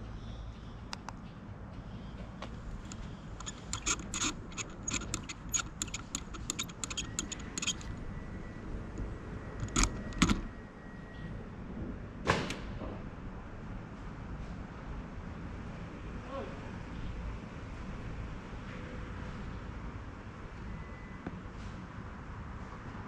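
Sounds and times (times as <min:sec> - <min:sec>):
light metallic clicks and rattles: 0:02.4 - 0:08.0, 0:09.0 - 0:10.5.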